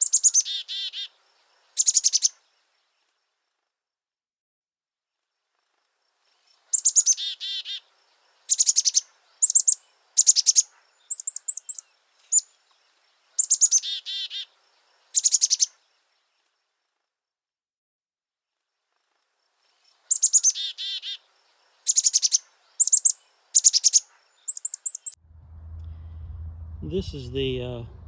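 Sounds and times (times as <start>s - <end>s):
songbird trilling: 0.0s - 1.1s, 1.8s - 2.4s, 6.7s - 7.9s, 8.5s - 12.5s, 13.4s - 15.8s, 20.0s - 21.2s, 21.9s - 25.2s.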